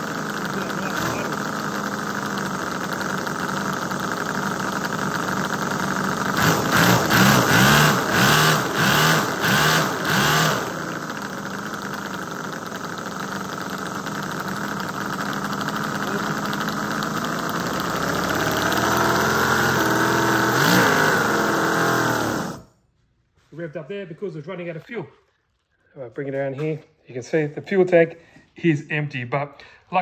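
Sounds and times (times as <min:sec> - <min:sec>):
model engine revving: 0:00.0 - 0:22.7.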